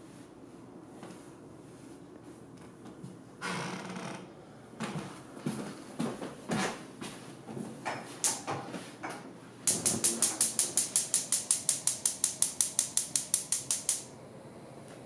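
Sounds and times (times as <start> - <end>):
spark igniter clicking: 9.7 - 14.1.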